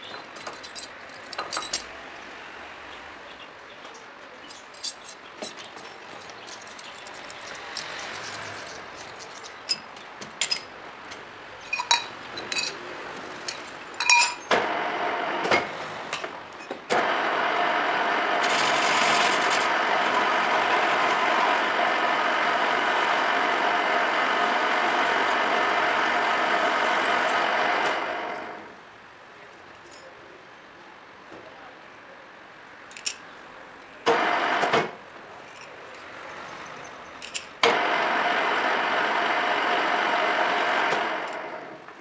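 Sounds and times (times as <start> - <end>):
metal clinks and clicks: 0.2 - 1.9, 4.4 - 10.7, 11.6 - 12.8, 13.4 - 14.4, 37.2 - 37.5
lathe running with whine: 17.0 - 28.7, 37.6 - 41.8.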